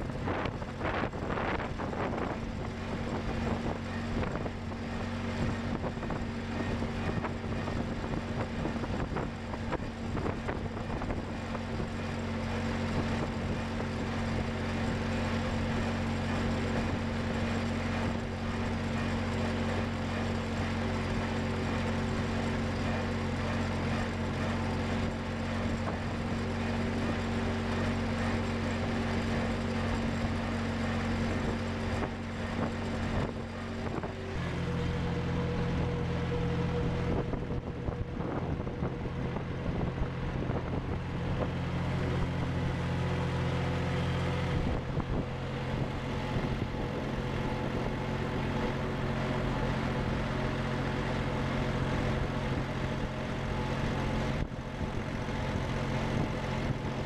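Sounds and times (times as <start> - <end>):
wind noise: 0.0 - 17.4, 31.2 - 34.6, 35.2 - 42.6, 44.4 - 48.8
road noise: 0.0 - 57.0
tractor engine running: 0.0 - 57.0.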